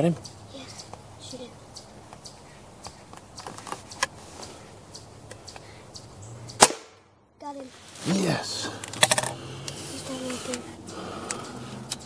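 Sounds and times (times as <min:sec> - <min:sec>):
air rifle shot: 0:06.6 - 0:07.1
light ticks: 0:11.2 - 0:12.0.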